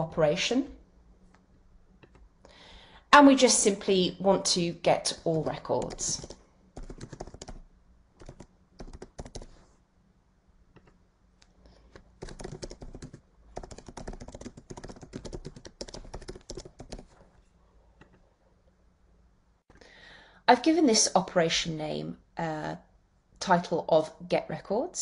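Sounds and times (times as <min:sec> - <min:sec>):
typing on computer keyboard: 0:05.4 - 0:07.6, 0:08.2 - 0:09.6, 0:12.2 - 0:17.2.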